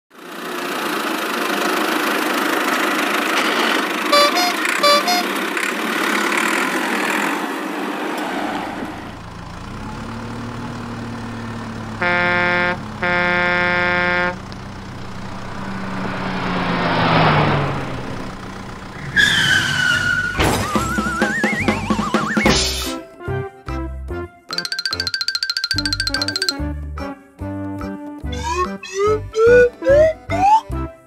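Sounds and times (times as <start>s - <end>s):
cartoon engine running: 3.4s - 5.7s, 24.5s - 26.6s, 28.3s - 30.6s
horn honks: 4.1s - 5.5s, 11.9s - 15.7s
whoosh: 14.7s - 19.2s.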